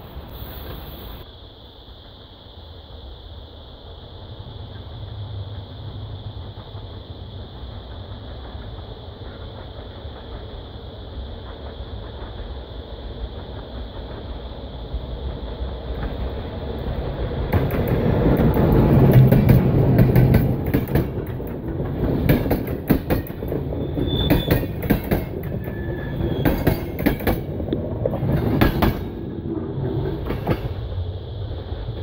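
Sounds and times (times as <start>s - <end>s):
electric locomotive hum: 0.0s - 32.0s
train wheels clattering over rail joints: 15.2s - 31.0s.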